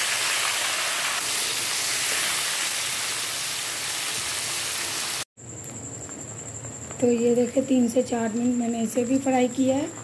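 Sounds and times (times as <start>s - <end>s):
potato slices sizzling in oil: 0.0s - 5.3s.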